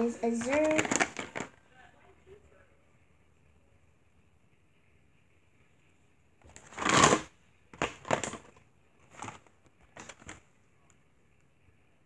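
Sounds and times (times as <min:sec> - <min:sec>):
cardboard box scraping and rustling: 0:06.6 - 0:07.3.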